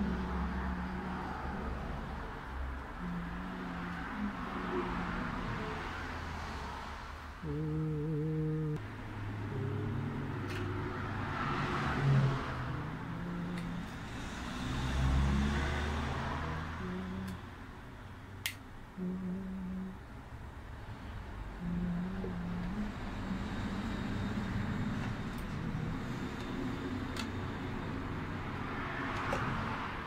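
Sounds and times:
slow tune of low notes: 7.4 - 13.9.

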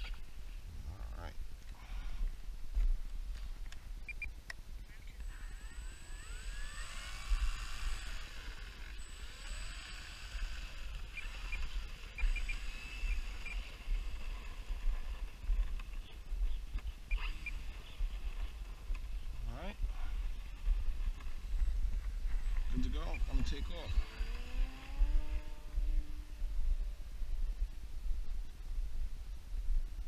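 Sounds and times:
model plane electric motor whining: 5.2 - 15.8, 22.5 - 26.3
wind rumble on microphone: 10.3 - 30.0.

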